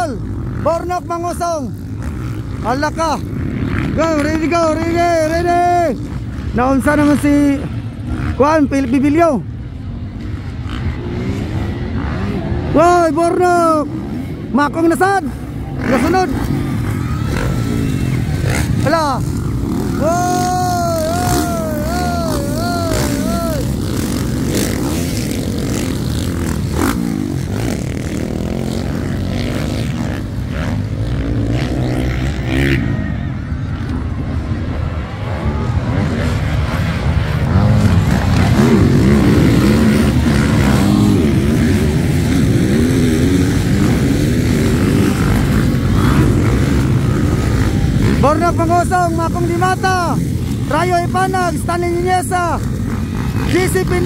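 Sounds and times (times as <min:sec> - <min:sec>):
dirt bike engines revving: 0:00.0 - 0:54.0.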